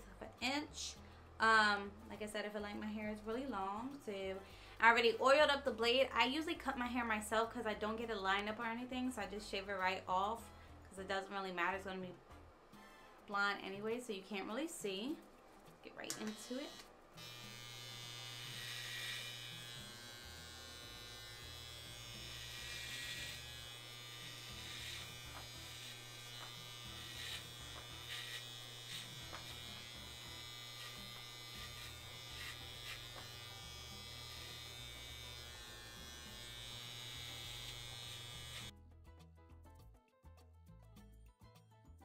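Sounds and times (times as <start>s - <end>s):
clipper blades rasping through hair: 15.3s - 38.7s
electric hair clippers buzzing: 16.1s - 38.7s.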